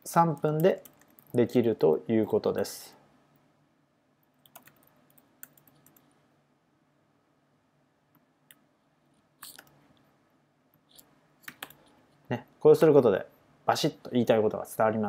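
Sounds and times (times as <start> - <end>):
faint keyboard keystrokes: 4.4 - 6.1.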